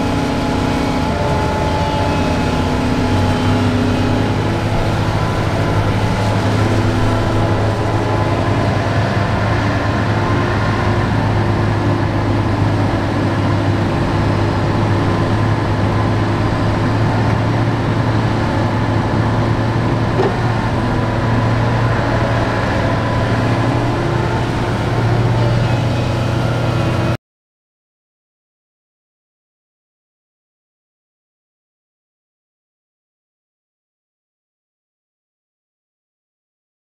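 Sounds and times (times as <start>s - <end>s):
excavator diesel engine running: 0.0s - 27.2s.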